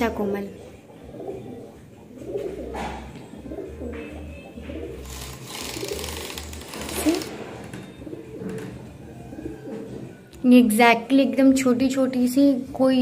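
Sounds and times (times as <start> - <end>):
pigeons cooing: 0.0 - 10.3
rustling scrape: 5.0 - 7.6.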